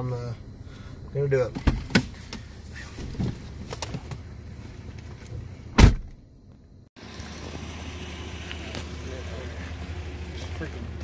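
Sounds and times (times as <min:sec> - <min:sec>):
car door slamming: 0:05.7 - 0:06.2.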